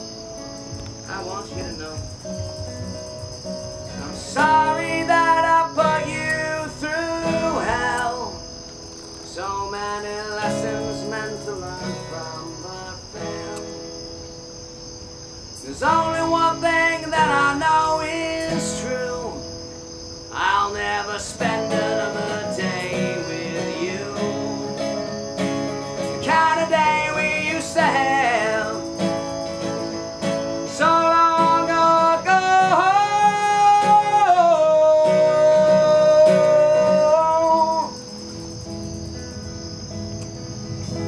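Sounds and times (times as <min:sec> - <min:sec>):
acoustic guitars playing: 0:00.0 - 0:41.0
crickets chirping: 0:00.0 - 0:41.0
man singing: 0:04.0 - 0:08.5, 0:09.3 - 0:13.8, 0:15.6 - 0:19.6, 0:20.3 - 0:25.0, 0:26.1 - 0:38.1.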